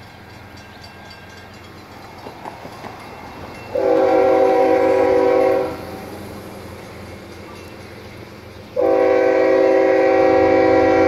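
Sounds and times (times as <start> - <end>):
train rumble: 0.0 - 11.0
locomotive air horn blast: 3.7 - 6.0, 8.8 - 11.0.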